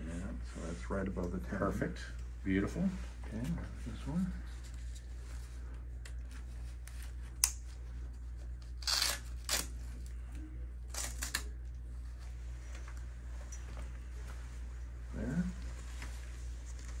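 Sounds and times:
strap scratching: 8.2 - 9.8.

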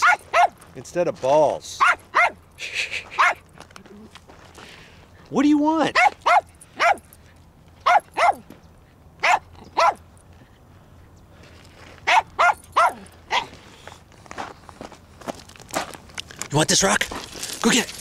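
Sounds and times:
small dog barking: 0.0 - 0.6, 1.8 - 2.4, 3.2 - 3.4, 5.9 - 7.0, 7.8 - 8.5, 9.2 - 10.0, 12.0 - 13.5.

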